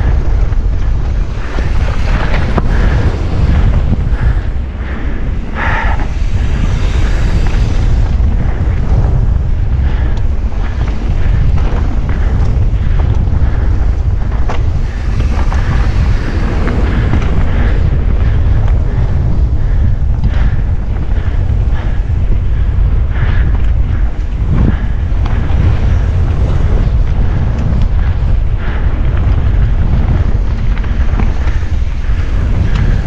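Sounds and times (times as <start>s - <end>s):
bike rattling over rough trail: 0.0s - 33.0s
wind buffeting microphone: 0.0s - 33.0s.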